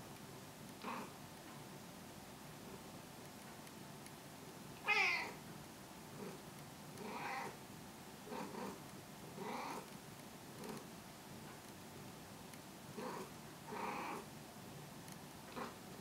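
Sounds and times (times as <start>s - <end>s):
cat meowing: 4.8s - 5.4s, 7.0s - 7.6s.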